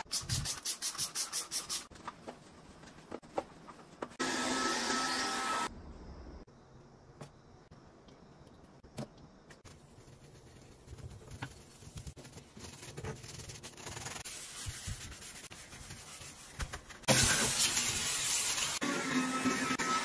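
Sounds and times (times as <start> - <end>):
cloth and brush scrubbing faucet: 9.7 - 20.0.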